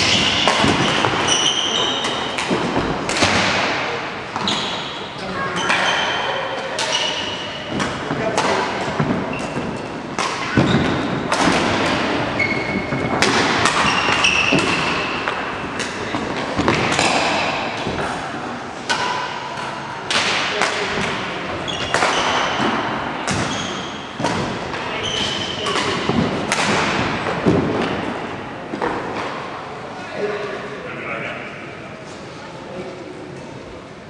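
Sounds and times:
short high shoe squeaks: 0:00.8 - 0:02.3, 0:12.4 - 0:13.1.

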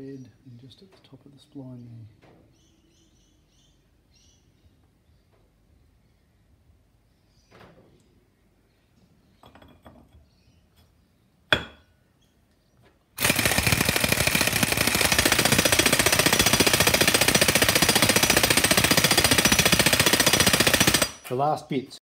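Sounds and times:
air impact wrench hammering: 0:13.2 - 0:21.3.

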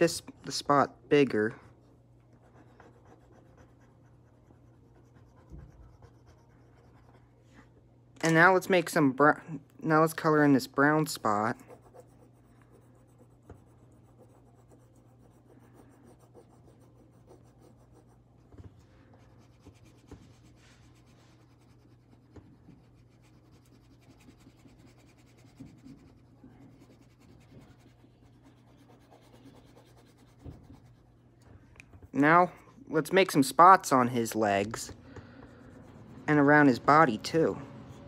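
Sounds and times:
steady low hum: 0:00.0 - 0:38.0
pencil scratching on paper: 0:02.3 - 0:07.3, 0:10.8 - 0:31.2.

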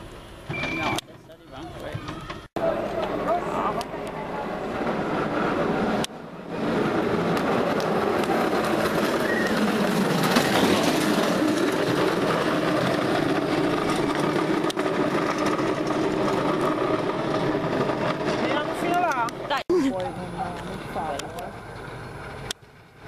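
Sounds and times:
cart wheels rattling on asphalt: 0:04.7 - 0:23.0.

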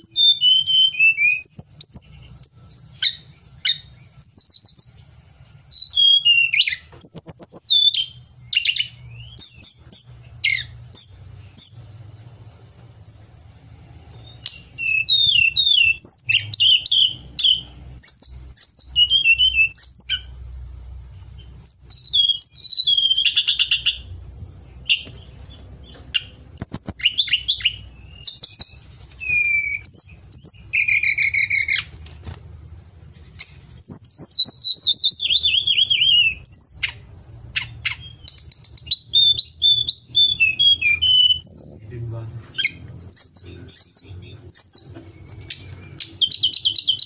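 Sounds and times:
bird singing whistles and trills: 0:00.0 - 0:05.1, 0:05.7 - 0:12.0, 0:14.2 - 0:20.4, 0:21.4 - 0:32.6, 0:33.2 - 0:47.0.

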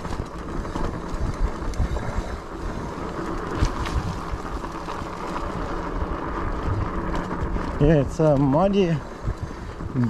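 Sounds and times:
bike clicks: 0:00.0 - 0:10.0
tyres rolling through mud: 0:00.0 - 0:10.0
wind buffeting microphone: 0:00.0 - 0:10.0.

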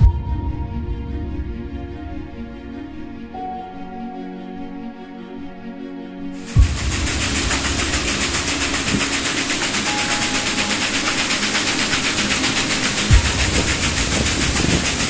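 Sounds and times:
water rushing through waterwheel: 0:06.4 - 0:15.0
low thumps: 0:06.5 - 0:10.0.

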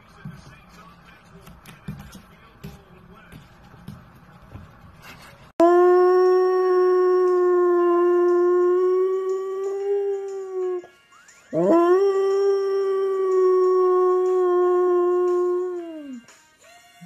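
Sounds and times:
dog howling: 0:11.5 - 0:16.2.

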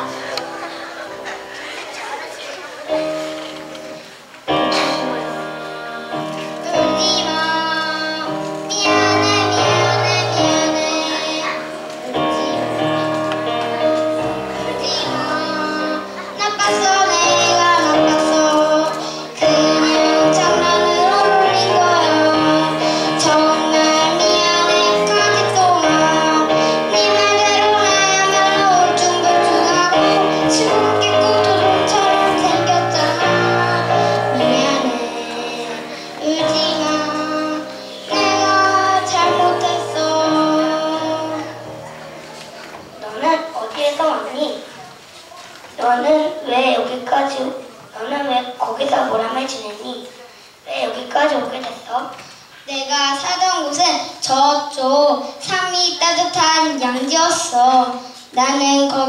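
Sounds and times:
recorded musical accompaniment: 0:00.0 - 0:43.6
child singing into a microphone: 0:00.0 - 0:59.0.

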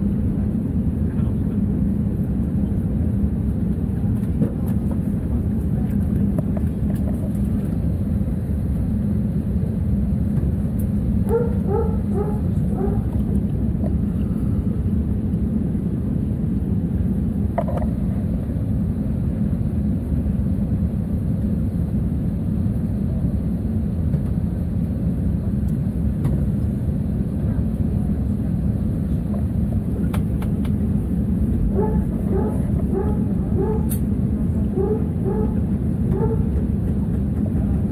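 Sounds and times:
aircraft engines rumbling: 0:00.0 - 0:37.9
dog barking: 0:11.3 - 0:13.1, 0:31.7 - 0:34.0, 0:34.8 - 0:36.5
dog yelping: 0:11.3 - 0:13.1, 0:31.7 - 0:34.0, 0:34.8 - 0:35.6, 0:36.2 - 0:36.5.

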